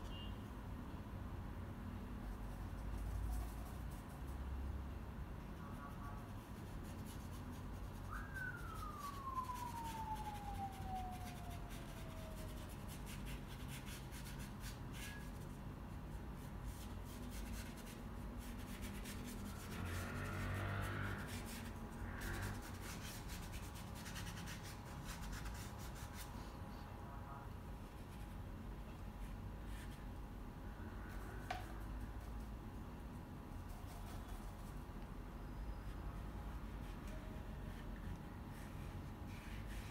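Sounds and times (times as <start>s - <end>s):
paintbrush scratching on paper: 2.2s - 4.5s, 5.6s - 26.8s, 29.2s - 30.0s, 33.5s - 34.9s, 35.8s - 39.9s.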